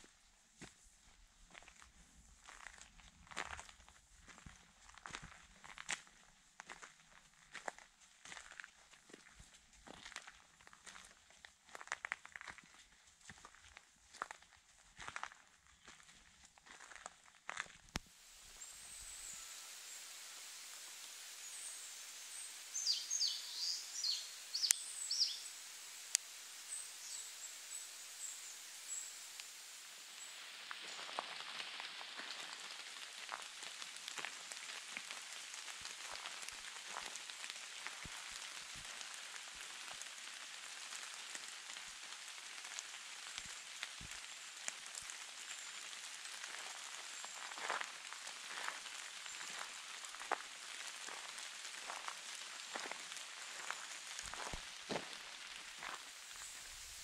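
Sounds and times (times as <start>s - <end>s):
rain pattering on leaves: 2.4s - 57.0s
small bird high calls: 18.4s - 32.8s.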